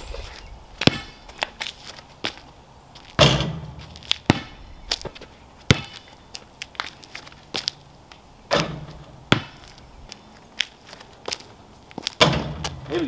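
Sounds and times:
ball clanging off hoop: 0.0 - 1.2, 3.2 - 4.5, 8.5 - 9.6, 12.2 - 12.9
basketball bouncing on concrete: 0.8 - 1.5, 3.2 - 6.1, 8.5 - 9.8.

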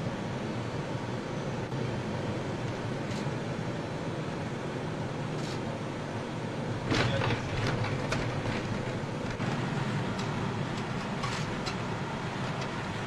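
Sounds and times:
jet cabin rumble: 6.4 - 13.0
knocks and rattles: 6.9 - 9.6.

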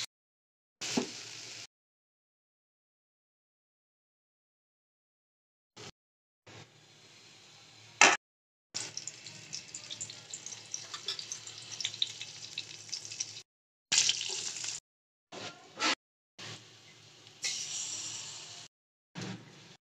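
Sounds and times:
seeds sizzling in hot oil: 8.8 - 14.8, 17.3 - 18.7.

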